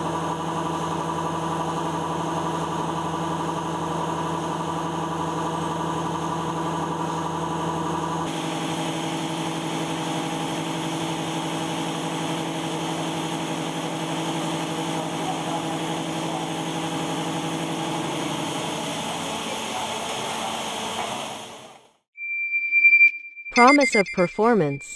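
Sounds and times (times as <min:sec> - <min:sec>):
machining center humming: 0:08.0 - 0:21.7
hissy machine running sound: 0:08.2 - 0:21.9.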